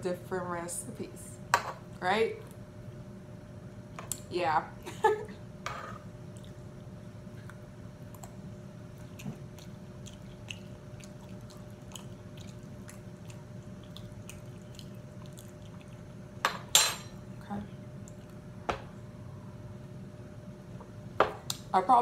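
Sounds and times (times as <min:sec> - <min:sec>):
faint steady hum: 0:00.0 - 0:22.0
person chewing: 0:08.1 - 0:16.1.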